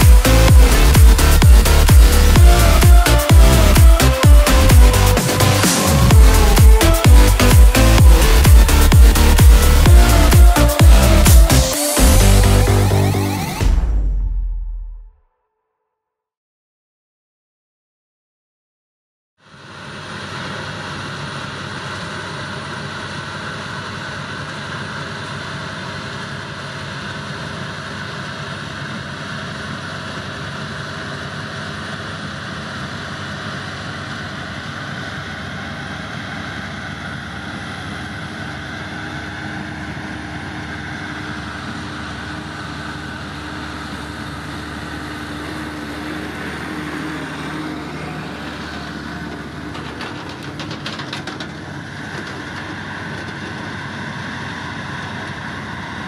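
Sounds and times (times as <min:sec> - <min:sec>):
tractor diesel engines running: 0:00.0 - 0:13.8, 0:19.4 - 0:56.0
rattling clatter: 0:49.2 - 0:53.7.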